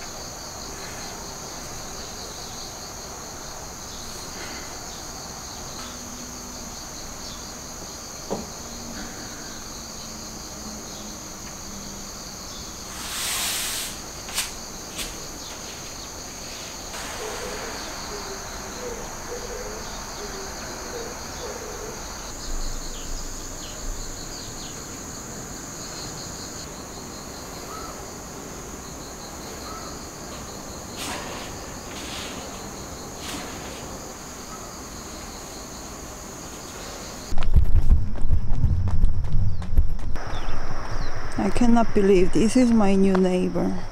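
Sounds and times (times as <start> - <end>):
insects chirping: 0.0 - 43.9
small knocks: 8.3 - 8.5.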